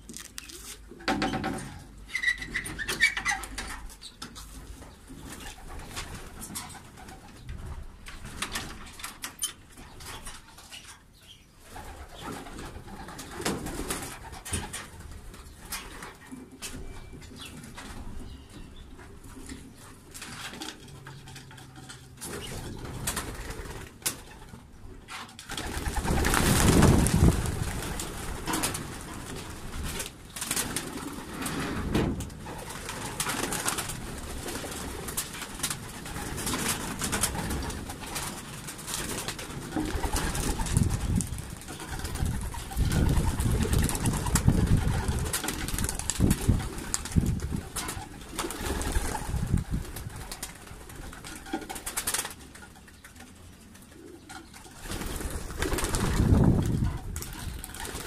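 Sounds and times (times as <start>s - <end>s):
wings flapping: 11.6s - 16.8s, 19.2s - 58.0s.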